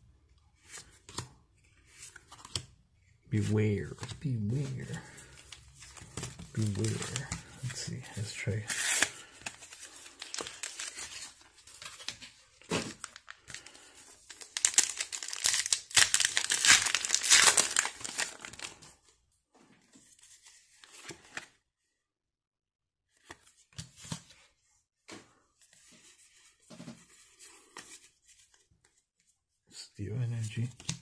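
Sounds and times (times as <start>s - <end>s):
cards rustling: 0.6s - 2.8s, 3.4s - 19.0s
foil wrapper tearing and crinkling: 14.3s - 18.8s.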